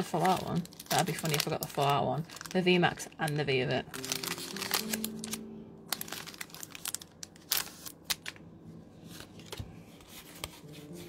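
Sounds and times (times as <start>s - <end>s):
foil wrapper crinkling and tearing: 0.0s - 8.4s.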